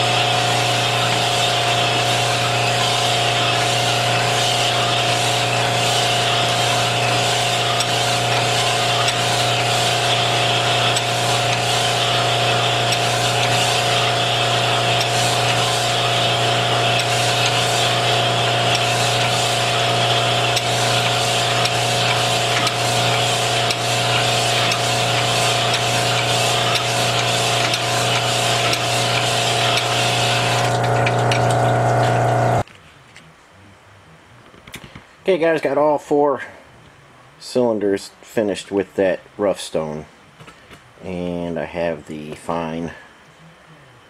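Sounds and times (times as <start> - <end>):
motor hum: 0.0 - 32.6
stones grinding in cylinder: 0.0 - 32.6.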